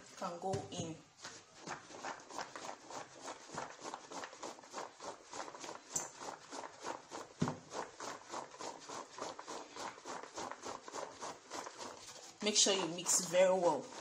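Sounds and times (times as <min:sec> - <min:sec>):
peanuts rubbed in flour by hand: 0:00.0 - 0:14.0.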